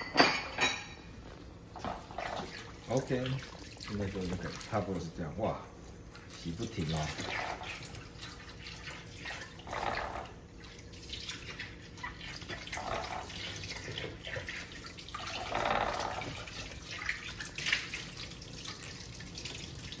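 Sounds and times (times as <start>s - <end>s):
water splashing and dripping: 2.0s - 5.0s, 10.2s - 20.0s.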